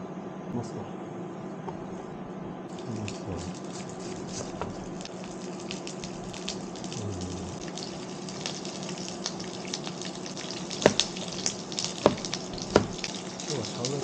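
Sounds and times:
food sizzling in a pan: 2.7 - 7.0, 7.6 - 14.0
knife knocking on cutting board: 10.8 - 11.1, 12.0 - 13.0.

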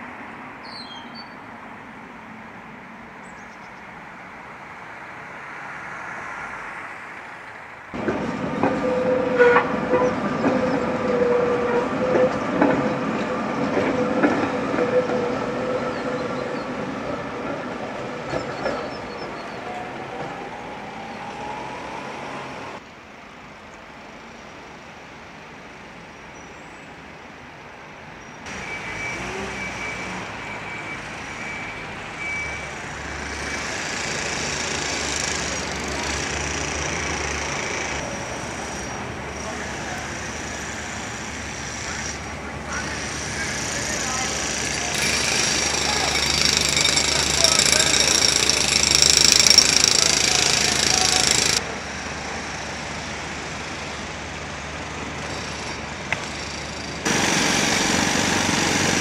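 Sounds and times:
tram wheels knocking over rails: 8.0 - 15.3, 42.8 - 51.6
tram motor whine: 8.0 - 22.8, 28.5 - 59.0
wheel squealing tone: 8.6 - 12.9, 41.6 - 51.6.

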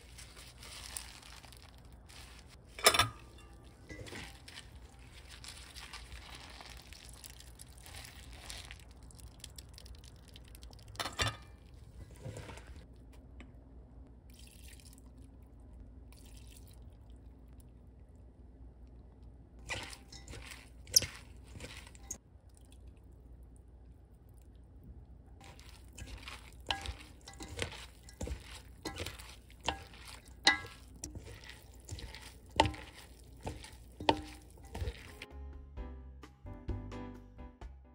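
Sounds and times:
wooden spoon knocking metal bowl: 25.4 - 35.2.

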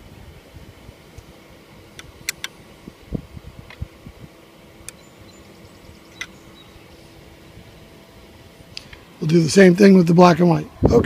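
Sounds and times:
faint steady hum: 0.0 - 11.0
sharp metal clicks: 2.0 - 2.6.

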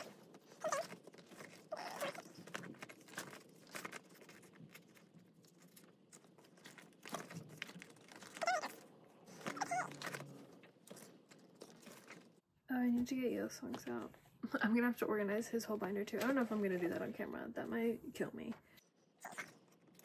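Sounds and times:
plastic and paper crinkling: 0.0 - 12.4, 16.0 - 17.3
high-pitched vocal calls: 8.2 - 8.8, 9.4 - 10.1.

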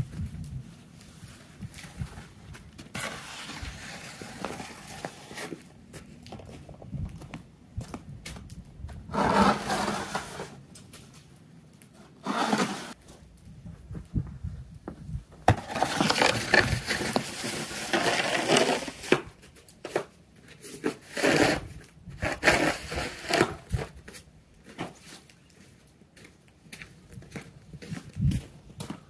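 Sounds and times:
plastic shovel scraping snow: 2.9 - 5.7, 9.1 - 10.6, 12.2 - 13.0, 15.5 - 19.2, 20.8 - 23.8.

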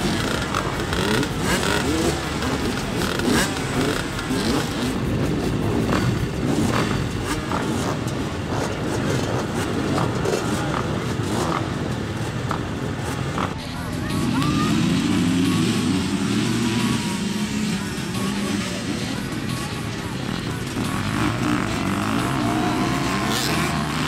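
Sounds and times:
dirt bike engines running: 0.0 - 24.0
engines revving: 0.0 - 24.0.

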